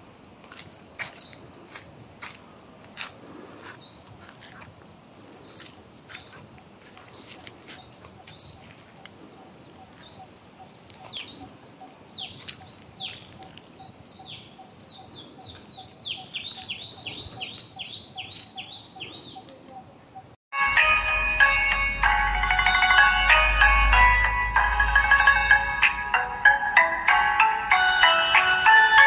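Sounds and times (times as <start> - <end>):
small birds chirping: 0.0 - 20.4.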